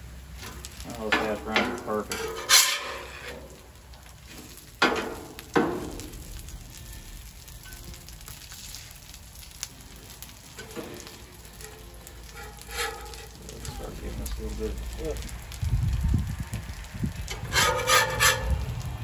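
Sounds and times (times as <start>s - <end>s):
hash browns sizzling on griddle: 0.0s - 19.0s
metal spatula clacking on griddle: 0.4s - 3.6s, 4.8s - 6.2s, 10.6s - 13.4s, 17.3s - 18.8s.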